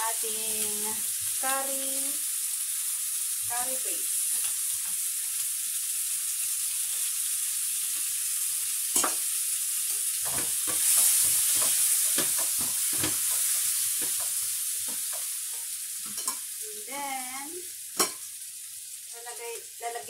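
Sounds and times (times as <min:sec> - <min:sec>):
chicken sizzling in oil: 0:00.0 - 0:20.0
spatula scraping a pan: 0:10.2 - 0:16.4.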